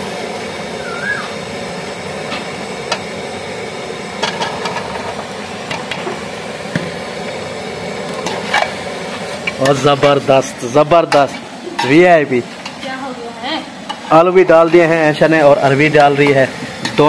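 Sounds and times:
frying hiss: 0.0 - 17.0.

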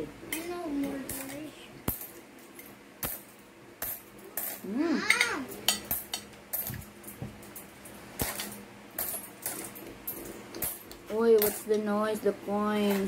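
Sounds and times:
cutlery clinking on ceramic plate: 3.8 - 6.8.

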